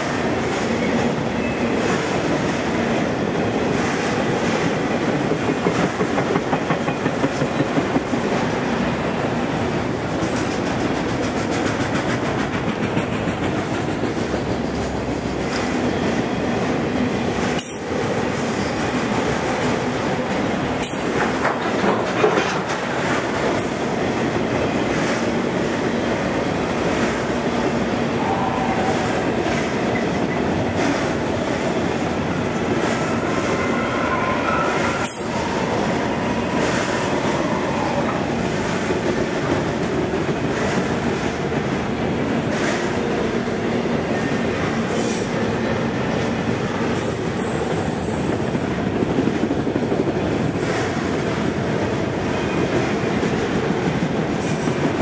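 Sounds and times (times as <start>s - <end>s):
freight train wheels rumbling: 0.0s - 55.0s
clacking over rail joints: 5.0s - 8.2s, 10.2s - 14.9s, 20.8s - 23.7s.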